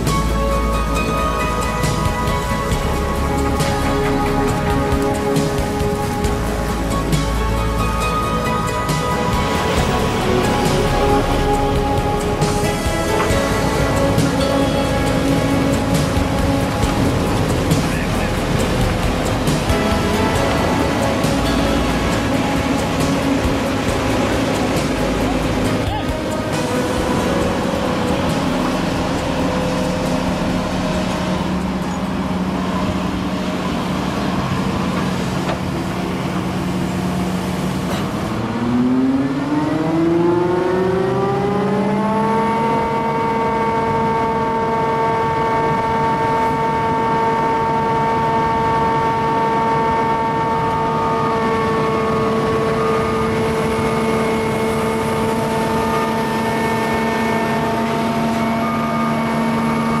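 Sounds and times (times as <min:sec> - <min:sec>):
diesel machinery engine revving: 0:00.0 - 1:00.0.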